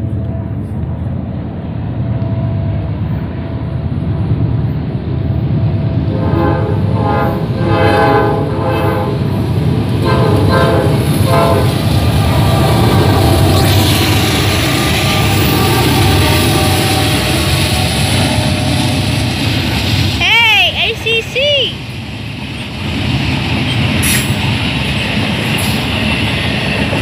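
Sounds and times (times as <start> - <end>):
locomotive engine rumble: 0.0 - 27.0
locomotive air horn blasts: 6.1 - 9.3, 10.0 - 11.8, 14.1 - 17.8.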